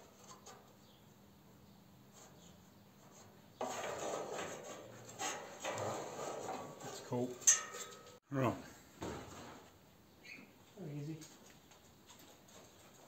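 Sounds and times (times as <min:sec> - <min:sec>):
parts rubbing and scraping: 0:02.1 - 0:08.2.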